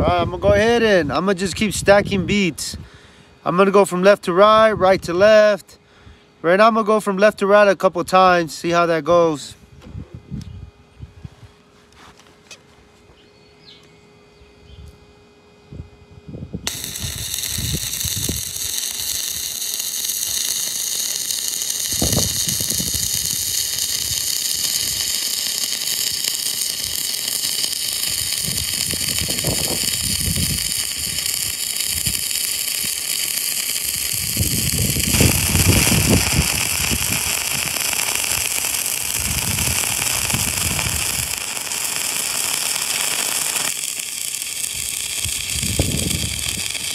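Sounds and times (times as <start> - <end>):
welding arc burning with pops: 16.6 - 46.9
electrode tapping: 16.7 - 46.9.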